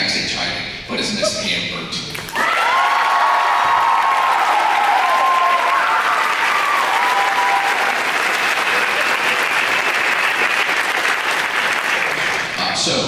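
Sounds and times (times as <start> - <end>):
audience applauding: 2.1 - 12.8
crowd whooping: 2.2 - 12.5.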